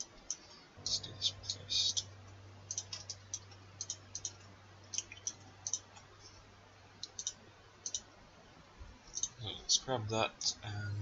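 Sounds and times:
faint low hum: 0.0s - 11.0s
computer mouse clicking: 2.7s - 6.1s, 7.0s - 8.1s, 9.1s - 9.4s.

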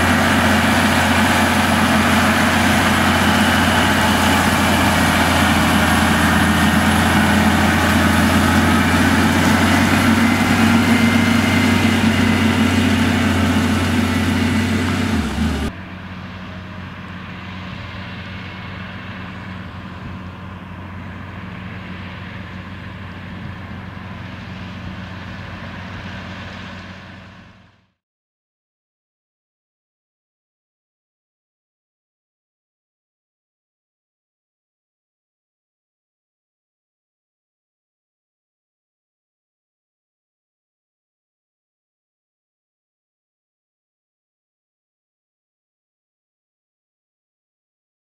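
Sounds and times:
distant tractor engine: 0.0s - 27.9s
tractor diesel engine under load: 0.0s - 28.0s.

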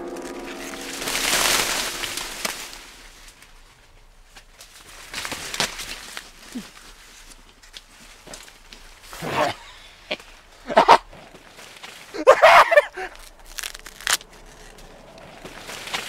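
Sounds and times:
loud noisy crash: 0.0s - 3.7s
corn leaves rustling: 0.0s - 16.0s
plants snapping: 4.3s - 9.1s, 11.2s - 16.0s.

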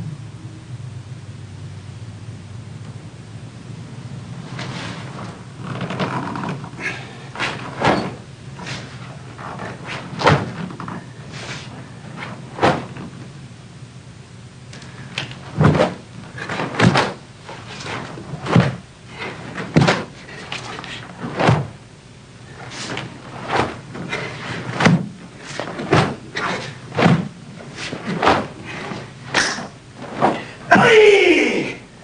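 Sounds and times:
bare feet stamping on wooden floor: 19.5s - 20.7s.

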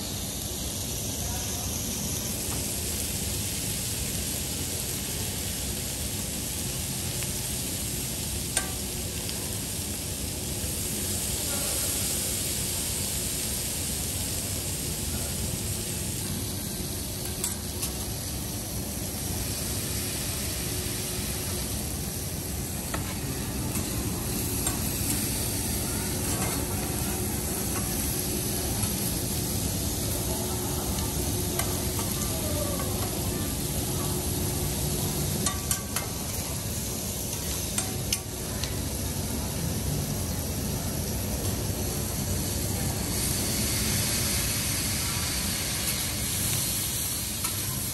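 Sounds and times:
food sizzling on a griddle: 0.0s - 47.9s
metal spatulas clacking on griddle: 26.2s - 26.7s, 35.4s - 36.4s.

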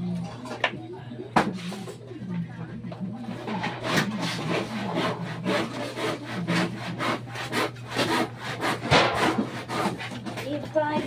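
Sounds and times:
hand saw cutting wood: 3.5s - 10.6s
loud knock: 8.8s - 9.5s.

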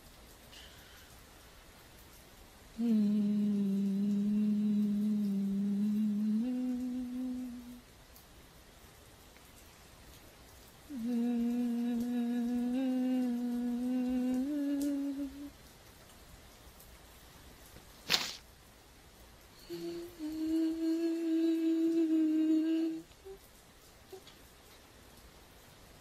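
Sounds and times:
woman humming slow tune: 2.7s - 7.9s, 10.9s - 15.6s, 19.6s - 24.4s.

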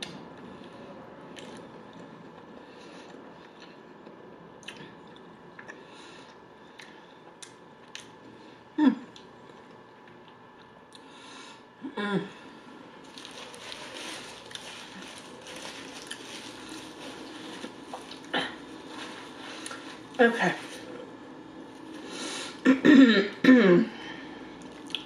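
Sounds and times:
person chewing food: 13.1s - 20.2s, 24.6s - 25.0s.

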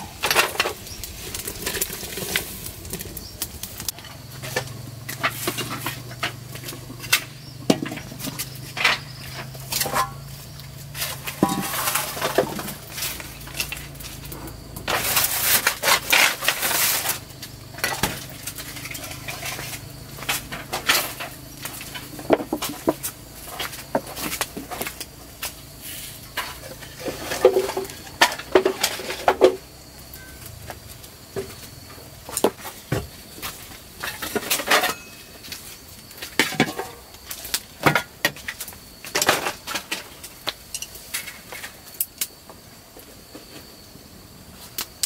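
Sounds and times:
pots and dishes clattering: 3.9s - 10.3s, 10.9s - 25.0s, 34.0s - 35.6s, 36.3s - 37.1s.

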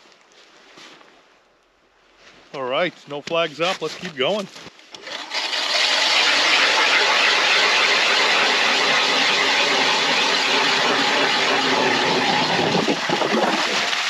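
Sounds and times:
power ice auger drilling: 4.9s - 14.0s.

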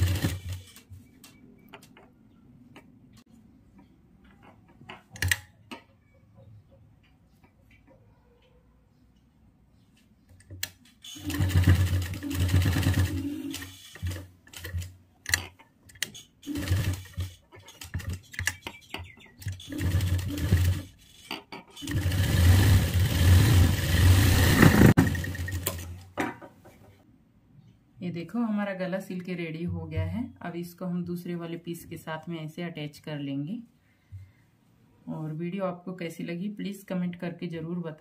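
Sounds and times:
sewing machine stitching: 0.0s - 0.8s, 11.0s - 14.9s, 16.1s - 18.5s, 19.4s - 25.9s.

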